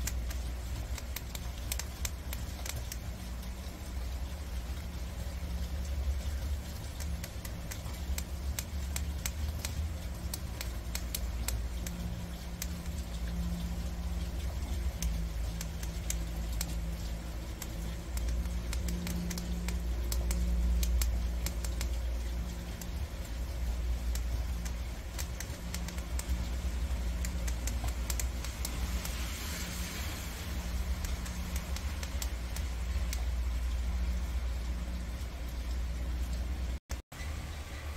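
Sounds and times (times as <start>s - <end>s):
steady low hum: 0.0s - 37.9s.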